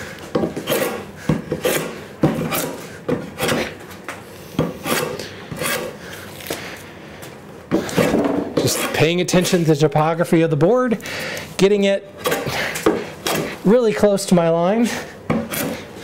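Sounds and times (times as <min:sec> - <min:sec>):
hand plane rasping through wood: 0:00.6 - 0:03.8, 0:04.8 - 0:06.0, 0:07.8 - 0:09.2.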